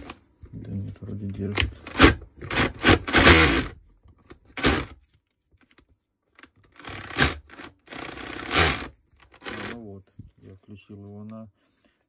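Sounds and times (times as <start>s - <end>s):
rotary hammer rattling: 6.6s - 9.8s.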